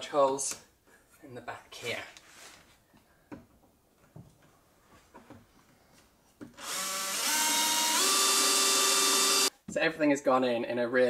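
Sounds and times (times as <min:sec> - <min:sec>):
drill bit rasping through wood: 0:06.6 - 0:09.5
power drill whining: 0:06.6 - 0:09.5.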